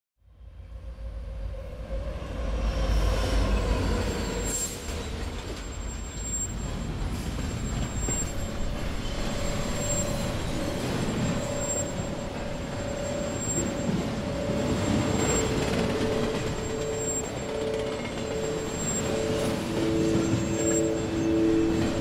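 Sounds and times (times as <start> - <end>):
faint high whine: 4.2 - 22.0.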